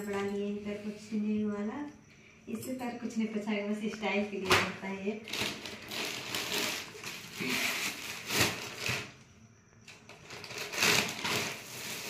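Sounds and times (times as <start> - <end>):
plastic bags rustling: 5.3 - 9.2, 10.2 - 12.0.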